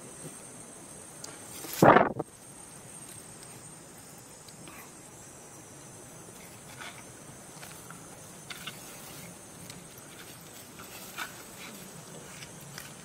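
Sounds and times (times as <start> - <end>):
steady high hiss: 0.0 - 13.0
dry leaves crackling and rustling: 7.5 - 13.0.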